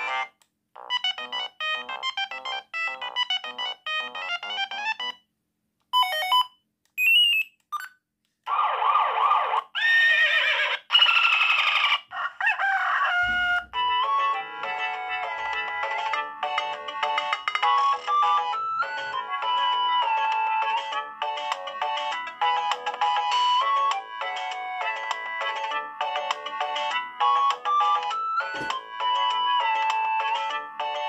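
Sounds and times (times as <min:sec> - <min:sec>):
mobile phone ringtones: 0:06.0 - 0:08.0.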